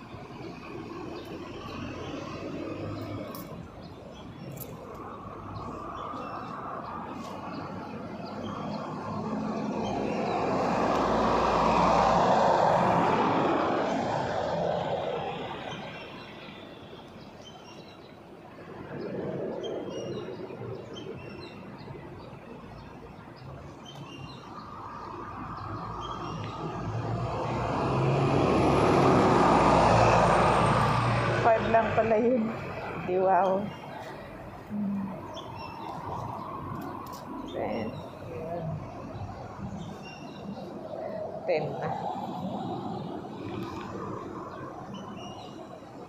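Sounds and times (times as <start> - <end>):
vehicle passing by: 5.0 - 16.2, 24.6 - 46.0.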